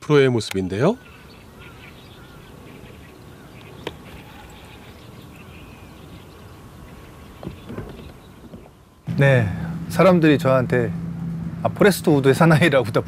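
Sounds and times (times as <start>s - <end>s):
low background noise: 0.0s - 13.0s
short bird calls: 0.8s - 9.8s.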